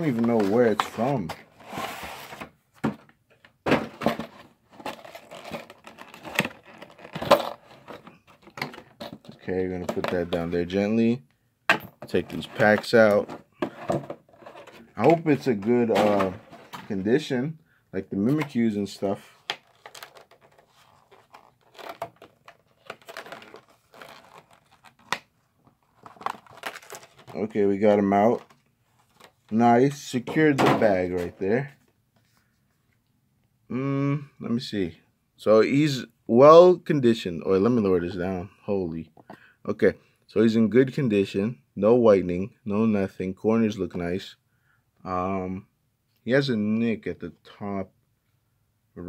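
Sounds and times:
packaging crinkling: 19.6s - 25.2s, 25.8s - 27.4s.

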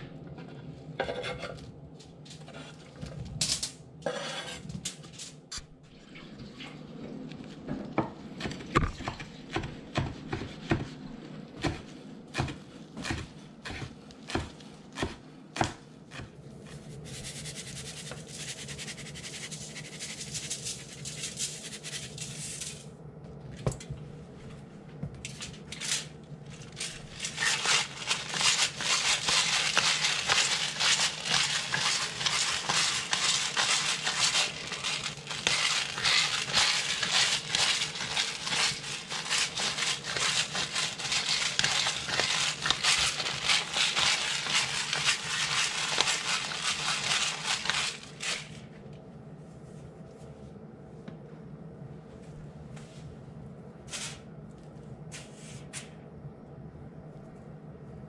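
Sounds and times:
spice grinder grinding: 25.8s - 48.6s.

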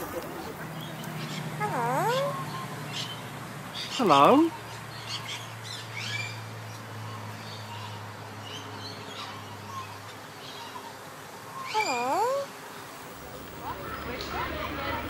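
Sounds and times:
parrot chirping: 1.2s - 3.2s, 11.6s - 15.0s
loud parrot call: 1.6s - 3.1s, 11.6s - 12.5s.

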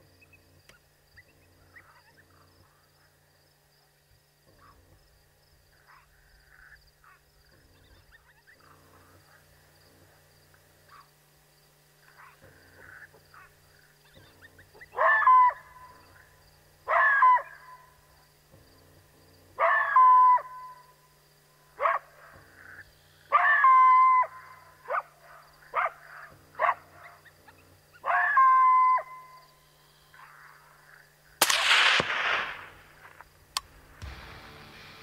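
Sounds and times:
coyote barking and howling: 12.0s - 18.2s, 19.5s - 21.0s, 21.7s - 31.1s.

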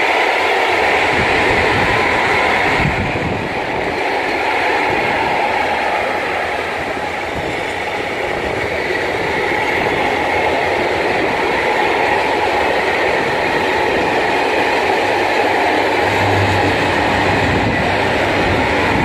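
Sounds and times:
freight train wheels rumbling: 0.0s - 19.0s.

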